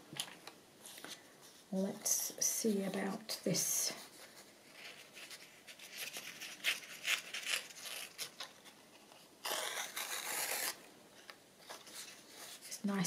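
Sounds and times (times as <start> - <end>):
paper rustling: 4.0 - 12.8.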